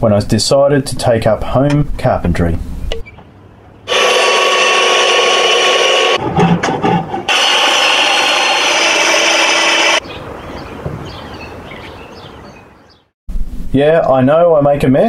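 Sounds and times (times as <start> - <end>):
circular saw cutting timber: 3.9 - 10.0
knocks and rubbing: 6.2 - 8.2.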